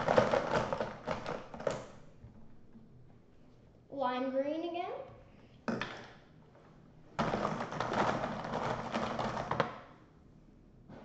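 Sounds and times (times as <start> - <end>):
plastic markers rattling in a bin: 0.0 - 2.0, 7.2 - 9.8.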